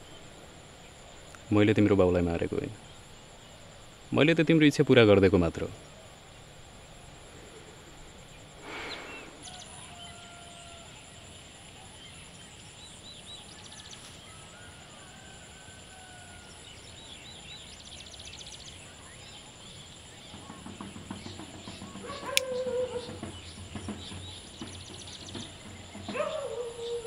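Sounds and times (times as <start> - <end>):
insect drone: 0.0 - 27.0
bird chirps and trills: 17.0 - 27.0.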